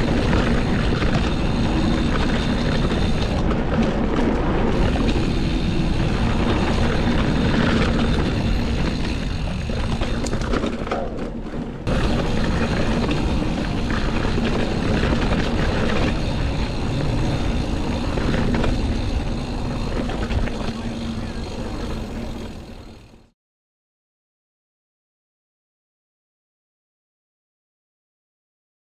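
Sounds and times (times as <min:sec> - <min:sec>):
wind buffeting microphone: 0:00.0 - 0:23.1
mountain bike tyre rumble: 0:00.0 - 0:23.3.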